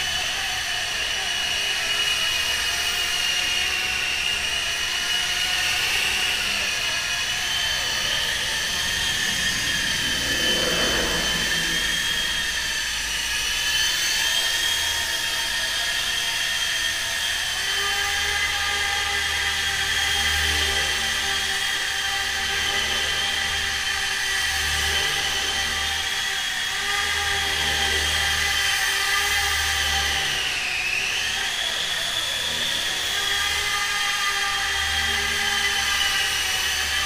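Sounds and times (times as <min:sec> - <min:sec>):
high-pitched electric motor whine: 0:00.0 - 0:37.0
brief rushing swell: 0:08.4 - 0:13.5.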